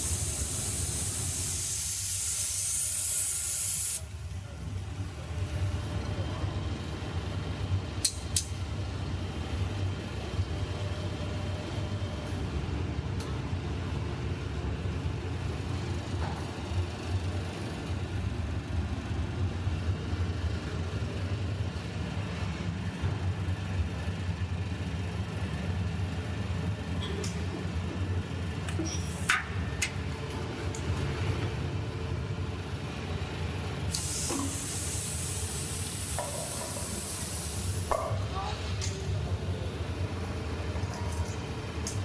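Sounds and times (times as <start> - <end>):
loud hiss: 0.0 - 4.1, 33.9 - 37.9.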